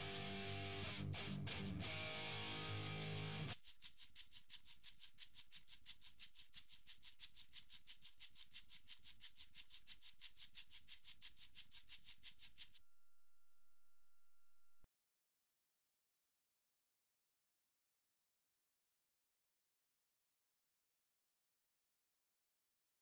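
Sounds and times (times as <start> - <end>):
rhythmic hissing ticks: 0.0 - 12.8
faint steady tone: 12.8 - 14.9.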